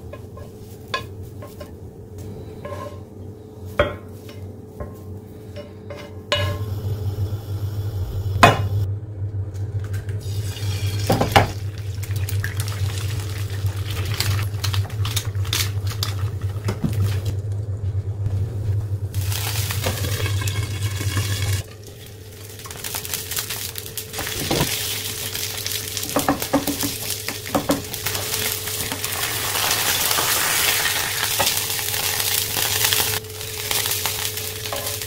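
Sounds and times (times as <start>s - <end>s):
steady low hum: 0.0s - 35.0s
eggs sizzling in frying pan: 10.2s - 17.4s, 19.2s - 35.0s
eggs cracking: 11.8s - 17.3s.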